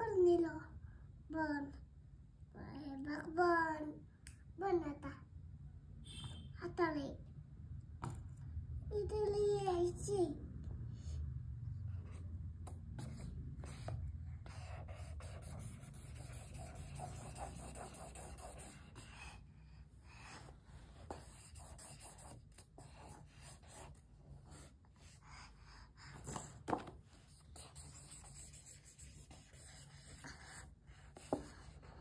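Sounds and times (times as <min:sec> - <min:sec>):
pen scribbling on paper: 0:13.0 - 0:19.4, 0:21.0 - 0:25.2, 0:27.3 - 0:32.0.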